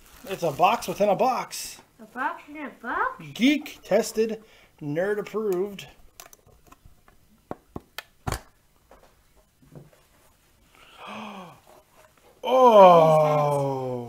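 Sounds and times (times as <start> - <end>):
person exclaiming in surprise: 12.4 - 14.0
person murmuring: 12.4 - 14.0.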